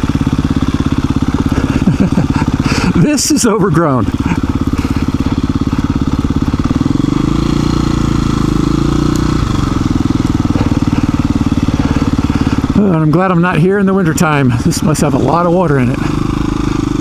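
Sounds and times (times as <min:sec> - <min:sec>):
motorcycle engine running: 0:00.0 - 0:17.0.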